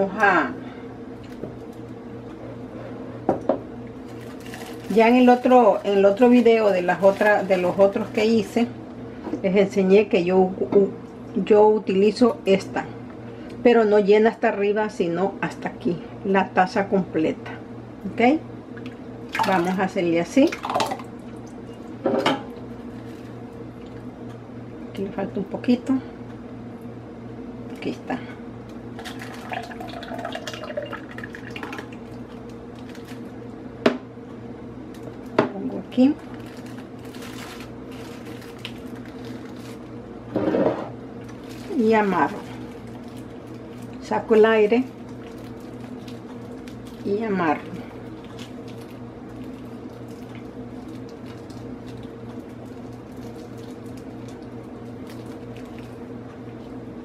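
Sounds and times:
steady low hum: 0.0 - 57.0
thick liquid pouring into bag: 4.1 - 8.2, 29.0 - 33.3, 47.8 - 56.0.

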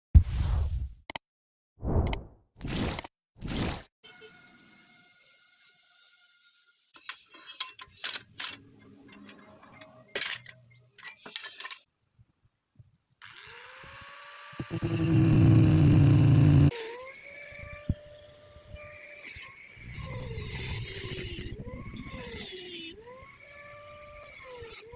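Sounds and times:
scrap steel clinking and clanking: 7.0 - 11.9
angle grinder cutting steel: 13.2 - 24.9.

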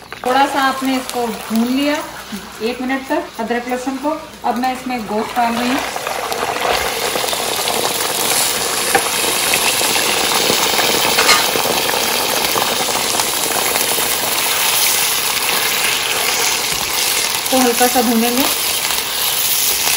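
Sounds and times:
meat sizzling in hot oil: 0.0 - 19.9
ladle knocking wok: 11.1 - 11.6.

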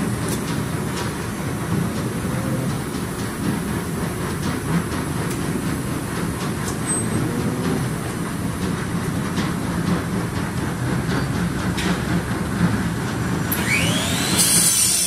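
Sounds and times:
machine rumbling: 0.0 - 15.0.

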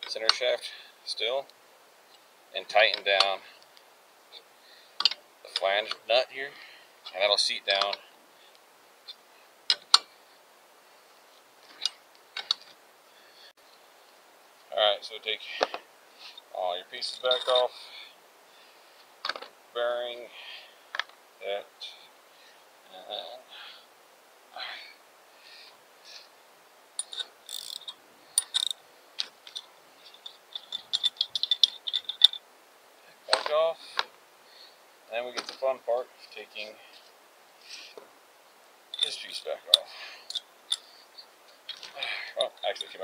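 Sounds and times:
metal tool pieces clinking: 17.0 - 17.7, 27.0 - 28.8, 29.5 - 32.4, 38.9 - 43.0
sharp metallic wrench clicks: 27.0 - 28.8.

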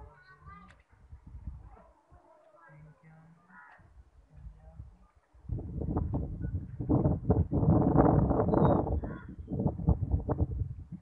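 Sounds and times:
microphone buffeting rumble: 0.9 - 1.8, 4.3 - 11.0.

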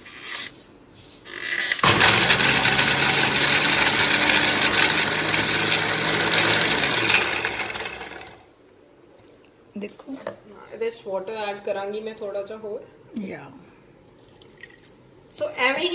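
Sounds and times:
mixer grinder running: 1.8 - 8.5.

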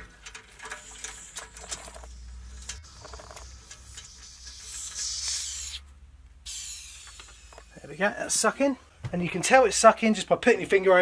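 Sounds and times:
metallic clicks and scraping: 0.0 - 5.4
air hissing from radiator valve: 0.6 - 8.0.

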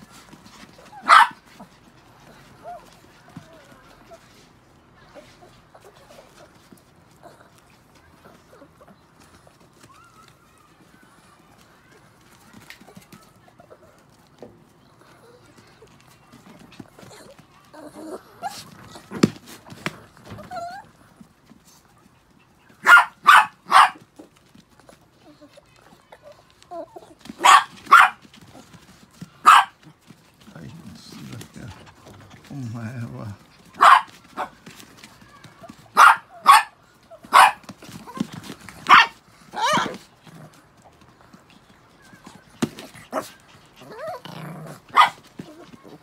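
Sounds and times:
small dogs barking: 0.8 - 1.6, 22.8 - 24.1, 27.3 - 28.3, 29.3 - 29.9, 33.7 - 34.6, 35.8 - 37.8, 38.8 - 40.1, 42.7 - 45.7
dog whining: 20.2 - 21.0, 42.9 - 44.8
soft rustling on tarp: 23.9 - 36.0.

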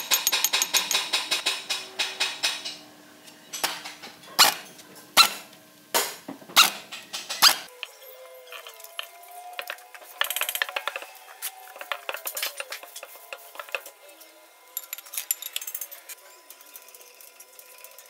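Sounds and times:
metallic clinks and scrapes: 0.0 - 1.5, 7.2 - 18.0.

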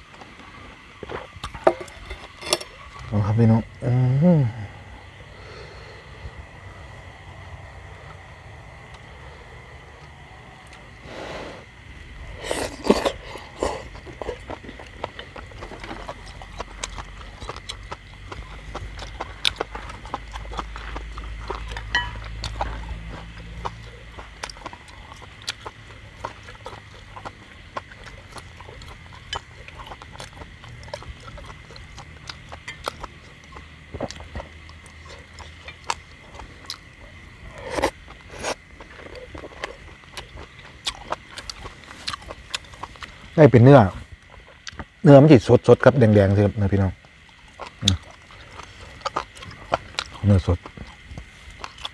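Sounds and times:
person chewing and lip smacking: 12.4 - 43.4, 44.2 - 45.0, 47.0 - 51.9.

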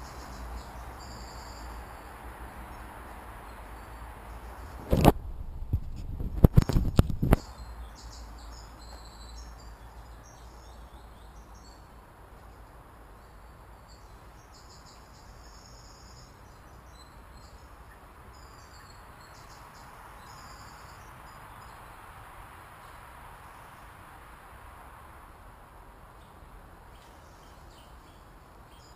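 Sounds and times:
crickets chirping: 0.0 - 4.9, 7.4 - 25.5
faint background hiss: 0.0 - 28.9.

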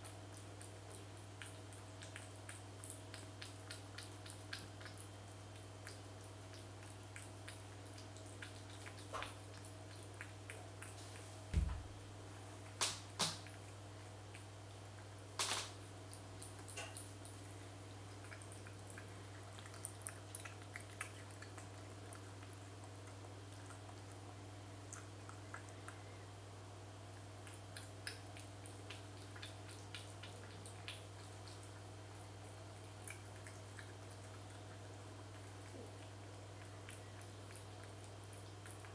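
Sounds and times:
cat eating wet food: 0.0 - 38.9
low thump: 11.5 - 11.9.

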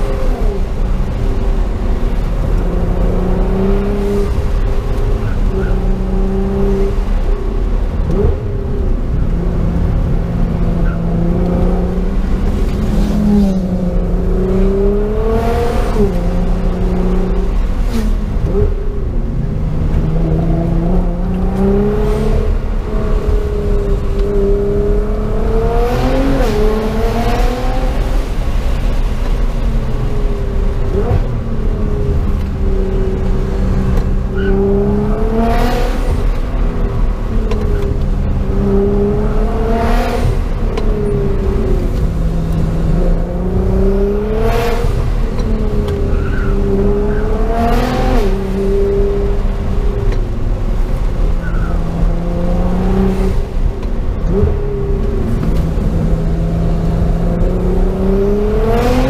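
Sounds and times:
car engine revving from inside cabin: 51.5 - 53.5, 54.1 - 59.0.

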